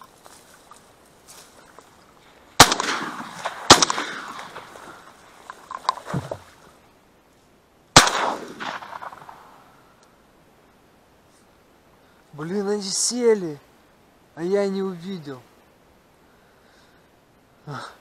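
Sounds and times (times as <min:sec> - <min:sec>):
shotgun shots echoing: 0:02.6 - 0:05.1, 0:08.0 - 0:09.6.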